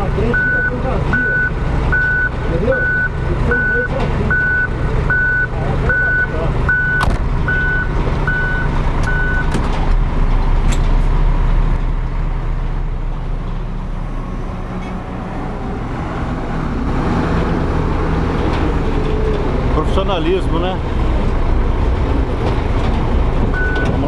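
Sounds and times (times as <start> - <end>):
diesel truck engine running: 0.0 - 24.0
reversing alarm beeping: 0.3 - 9.5, 23.6 - 24.0.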